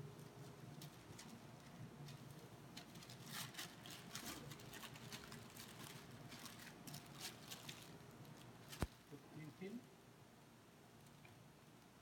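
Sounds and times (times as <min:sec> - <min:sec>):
paper crinkling and rustling: 0:00.8 - 0:09.0.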